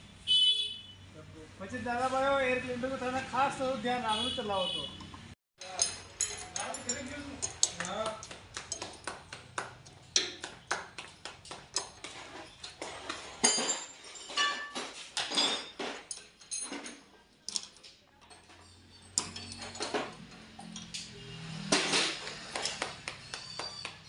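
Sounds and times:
metal tools clinking and knocking: 4.9 - 9.1, 9.8 - 10.4, 11.7 - 24.0.

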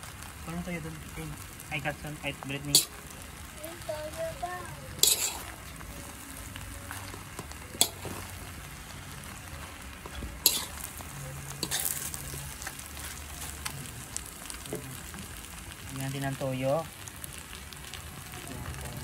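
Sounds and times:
rice sizzling in wok: 0.0 - 19.0
spatula scraping wok: 2.3 - 3.4, 4.8 - 15.2
spatula clanking against wok: 7.7 - 8.2, 10.0 - 10.8.

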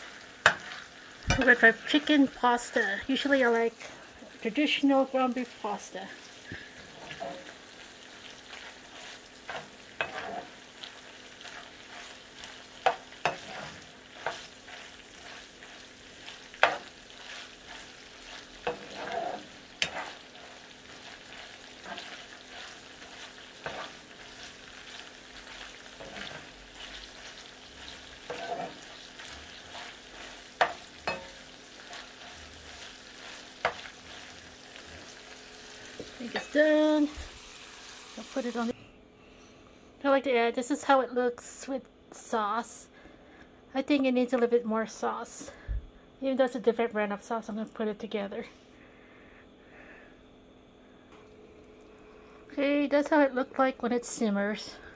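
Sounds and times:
chicken sizzling in a skillet: 0.0 - 38.8.

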